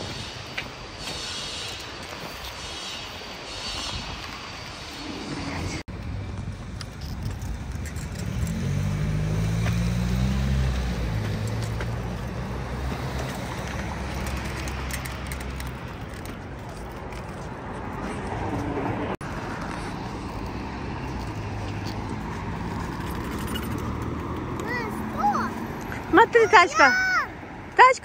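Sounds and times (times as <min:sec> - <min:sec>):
low road noise rumble: 0:00.0 - 0:28.0
vehicle engine passing: 0:07.9 - 0:16.1, 0:17.7 - 0:26.6.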